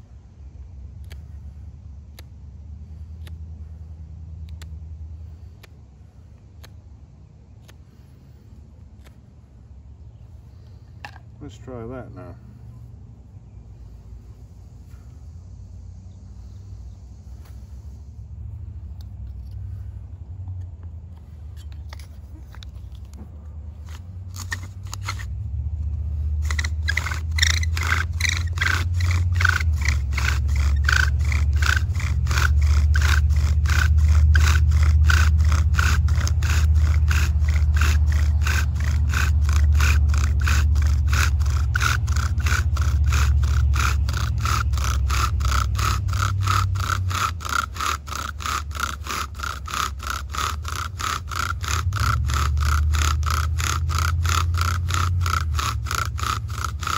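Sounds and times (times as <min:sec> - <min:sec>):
bow drill scraping and squeaking: 0:20.6 - 0:56.9.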